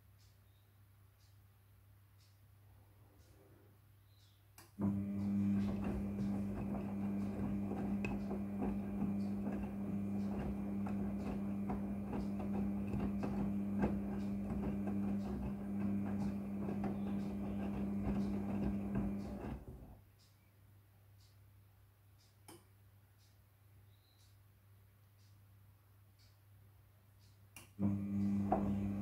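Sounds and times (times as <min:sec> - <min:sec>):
washing machine motor hum: 0:04.8 - 0:20.0, 0:27.8 - 0:29.0.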